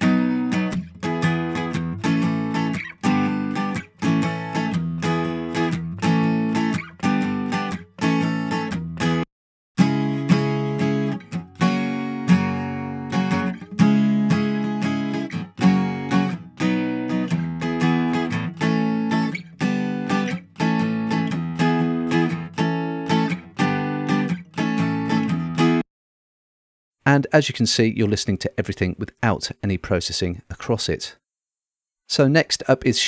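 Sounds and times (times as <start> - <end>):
acoustic guitar strumming chords: 0.0 - 9.2, 9.8 - 25.8.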